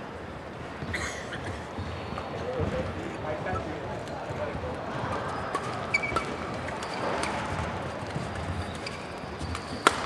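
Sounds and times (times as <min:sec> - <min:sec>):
hall background noise: 0:00.0 - 0:10.0
shoes squeaking on court floor: 0:00.7 - 0:10.0
racket hitting shuttlecock: 0:09.5 - 0:10.0.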